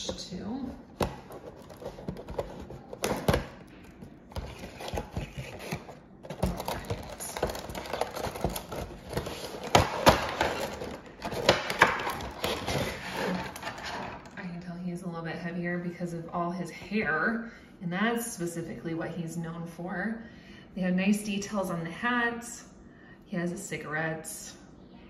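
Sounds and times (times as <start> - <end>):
cardboard box and plastic being opened: 1.0 - 14.4.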